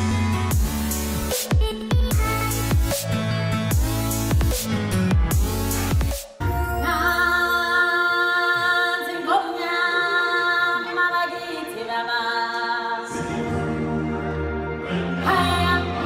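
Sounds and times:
electronic music: 0.0 - 8.2
choir singing held notes: 12.9 - 16.0.

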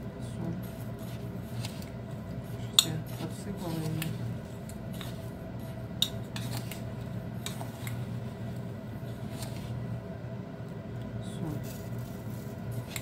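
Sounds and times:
spoon scraping salt: 2.6 - 6.8.

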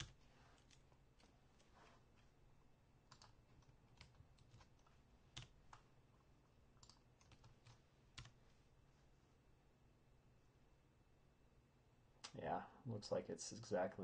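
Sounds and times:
computer keyboard keystrokes: 3.1 - 5.8, 6.8 - 8.3.

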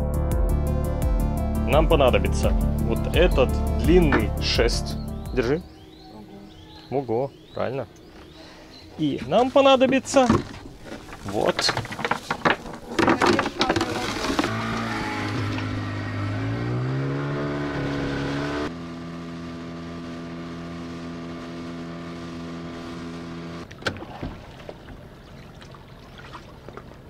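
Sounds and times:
small outboard motor: 13.8 - 27.0.

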